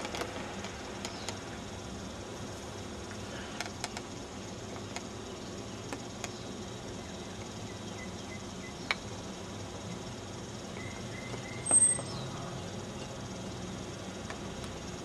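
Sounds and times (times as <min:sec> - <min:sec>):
background hiss: 0:00.0 - 0:15.0
faint high chirps: 0:10.7 - 0:12.4.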